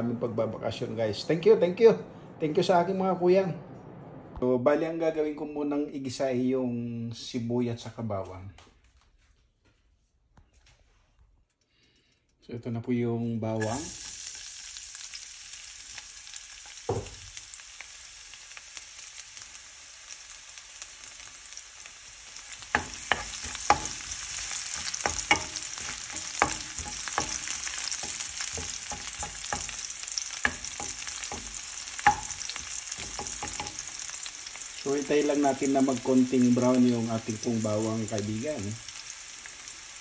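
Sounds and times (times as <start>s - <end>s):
garlic sizzling in oil: 13.6s - 40.0s
knock: 16.9s - 17.2s
wooden spatula knocking on pan: 16.9s - 17.2s, 22.7s - 34.0s.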